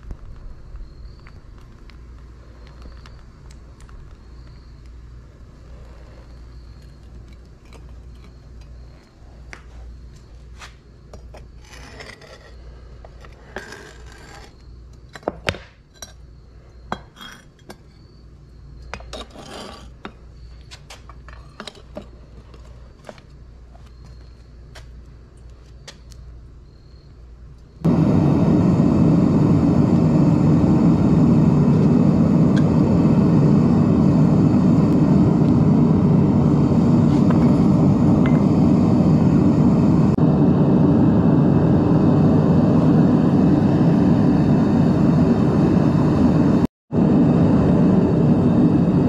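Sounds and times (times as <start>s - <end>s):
metal scraping on concrete: 10.5s - 14.6s, 19.0s - 22.6s
steady low hum: 15.8s - 49.0s.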